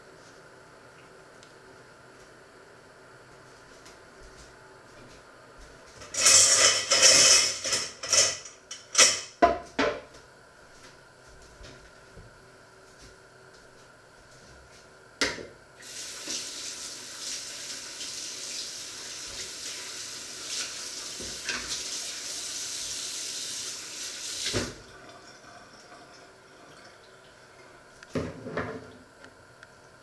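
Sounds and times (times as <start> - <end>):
water running into sink: 15.8 - 27.8.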